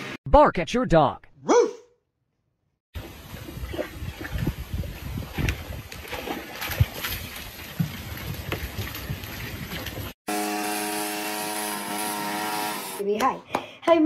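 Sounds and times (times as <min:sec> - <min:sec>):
water splashing in a plastic tub: 0:03.0 - 0:10.2.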